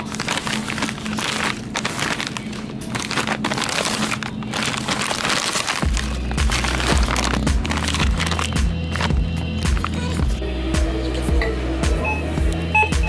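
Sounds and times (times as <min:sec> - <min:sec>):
plastic pouches crinkling: 0:00.0 - 0:10.2
background music: 0:05.8 - 0:13.0
heavy bass beat: 0:05.8 - 0:13.0.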